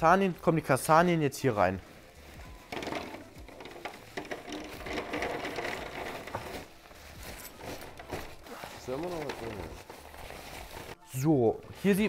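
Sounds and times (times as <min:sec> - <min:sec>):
chestnuts poured into container: 0:02.7 - 0:06.6.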